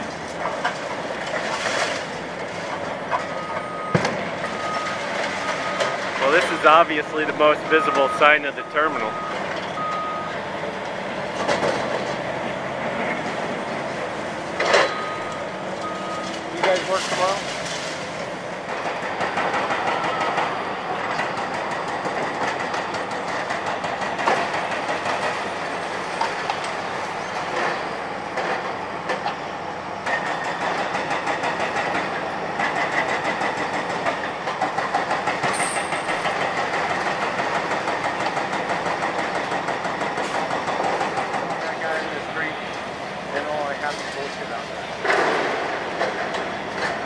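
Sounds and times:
excavator engine running: 0:00.0 - 0:47.0
concrete crunching and clattering: 0:14.5 - 0:20.0.

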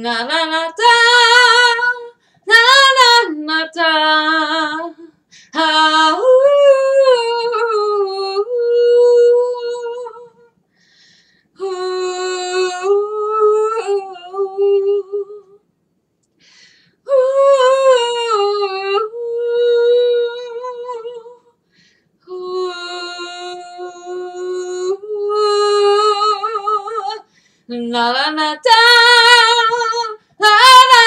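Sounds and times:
woman singing unaccompanied: 0:00.0 - 0:10.5, 0:11.6 - 0:15.6, 0:17.1 - 0:21.5, 0:22.2 - 0:31.0
breaths: 0:02.2 - 0:02.5, 0:05.1 - 0:05.6, 0:10.6 - 0:11.6, 0:16.3 - 0:17.1, 0:21.6 - 0:22.2, 0:27.2 - 0:27.7.

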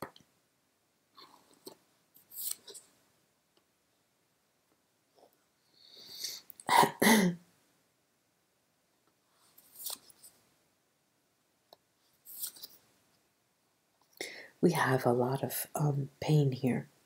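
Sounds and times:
woman sniffling: 0:05.8 - 0:07.4
woman's catches of breath: 0:14.2 - 0:14.6.

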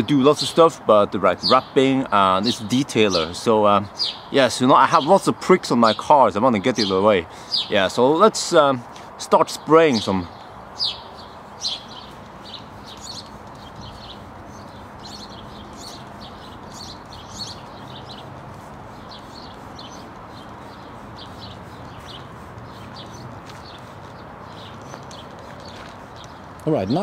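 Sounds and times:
small birds chirping: 0:00.0 - 0:27.0
outdoor background hum: 0:08.8 - 0:27.0.

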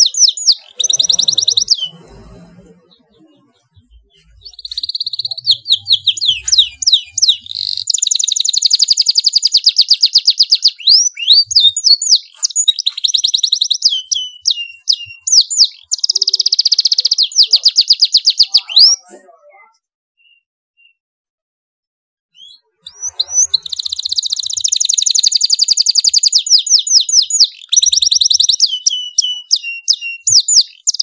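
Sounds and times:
canary singing trills: 0:00.0 - 0:19.1, 0:20.2 - 0:21.0, 0:22.3 - 0:31.0.

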